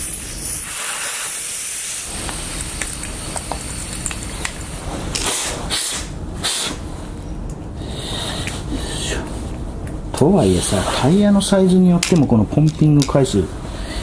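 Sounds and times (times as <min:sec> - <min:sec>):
air hissing from tyre valve: 0:00.0 - 0:06.9.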